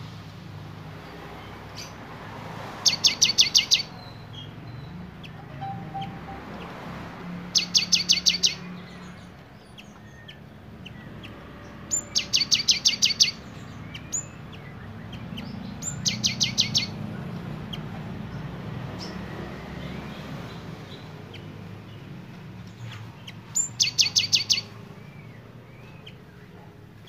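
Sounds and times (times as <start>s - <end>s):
bird singing sharp high notes: 2.8s - 9.2s, 9.8s - 17.0s, 23.6s - 26.1s.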